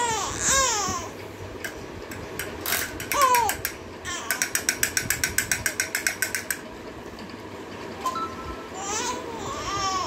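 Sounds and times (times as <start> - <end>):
plastic ratchet clicking: 2.1 - 6.6.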